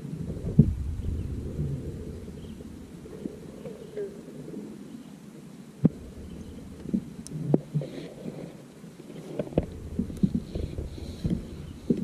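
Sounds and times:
low rumble: 0:00.0 - 0:04.0, 0:05.9 - 0:07.6, 0:09.6 - 0:12.0.

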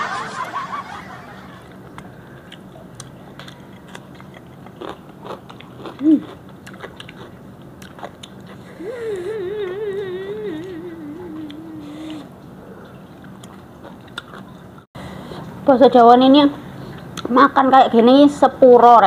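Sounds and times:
wavering hum of enjoyment: 0:00.0 - 0:02.3, 0:08.6 - 0:13.3
people chewing crunchy food: 0:01.8 - 0:15.5
short vocal sound: 0:08.6 - 0:12.8.

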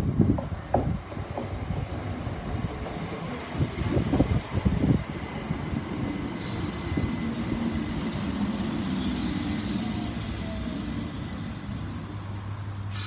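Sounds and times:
train rumble and hum: 0:00.0 - 0:13.0
air hissing: 0:06.3 - 0:13.0
faint brake squeal: 0:06.4 - 0:13.0.

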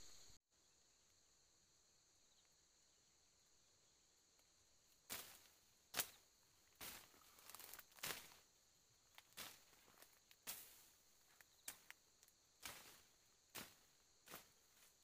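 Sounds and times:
faint insect hum: 0:00.0 - 0:15.0
undergrowth rustling and crackling: 0:04.8 - 0:15.0
stems snapping: 0:05.1 - 0:06.2, 0:06.8 - 0:08.4, 0:09.1 - 0:14.5.

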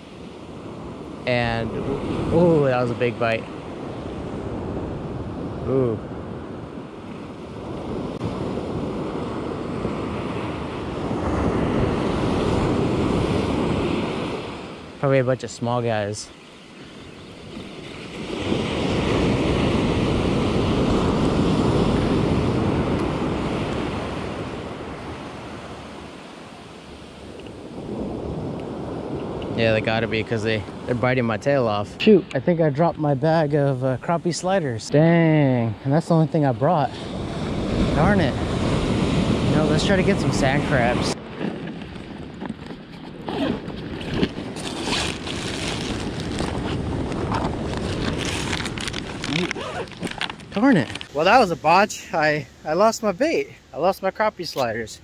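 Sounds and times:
surf: 0:00.0 - 0:55.0
clothing and gear rustling: 0:41.4 - 0:51.2.

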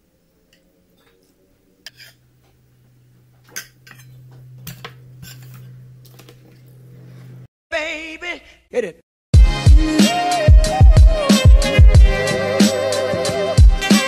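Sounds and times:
cutlery clinking against plate: 0:00.5 - 0:02.2, 0:03.4 - 0:06.7.

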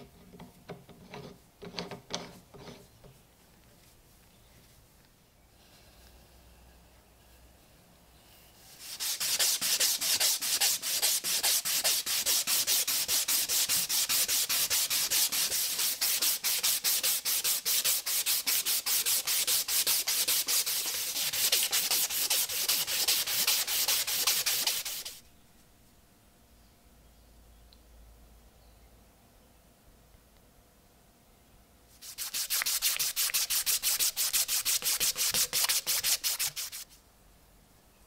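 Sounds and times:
sandpaper sanding wood: 0:08.7 - 0:25.2, 0:32.0 - 0:36.9.

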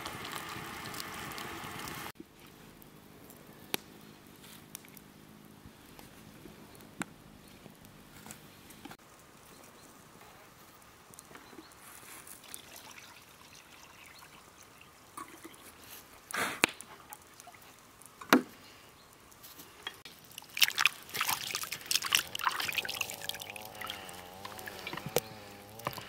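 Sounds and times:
water splashing and trickling: 0:00.0 - 0:02.2, 0:11.7 - 0:18.3, 0:19.3 - 0:26.0.

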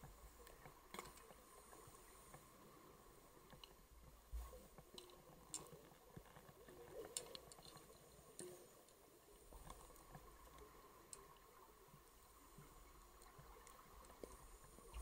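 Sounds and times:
faint underwater hum: 0:00.0 - 0:15.0
small clicks and ticks: 0:00.0 - 0:15.0.

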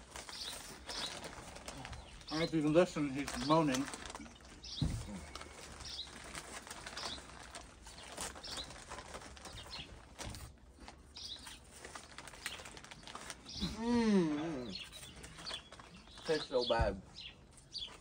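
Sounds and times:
bird chirping: 0:00.2 - 0:18.0
boy moaning: 0:13.6 - 0:14.8.

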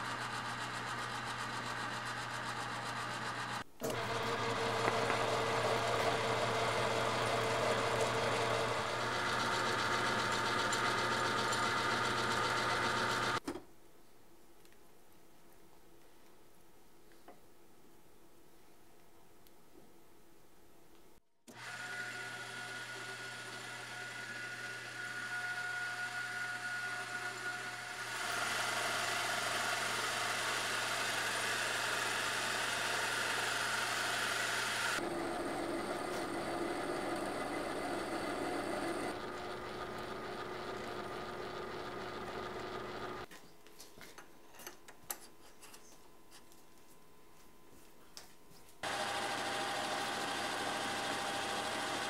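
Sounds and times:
lathe motor hum: 0:00.1 - 0:13.4, 0:21.5 - 0:43.3, 0:48.8 - 0:52.0
tool cutting metal shaft: 0:21.5 - 0:35.0, 0:48.8 - 0:52.0.

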